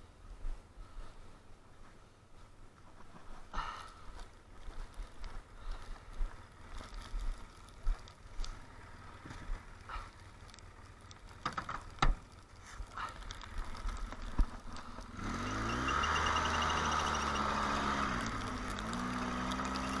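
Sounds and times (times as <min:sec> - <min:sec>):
knocks and crunches: 0:06.7 - 0:15.2
atv engine revving: 0:14.5 - 0:20.0.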